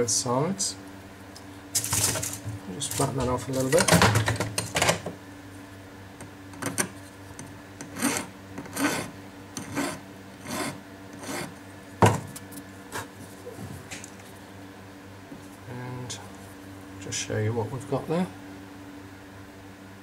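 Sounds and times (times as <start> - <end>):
hand file rasping on metal: 7.8 - 11.6.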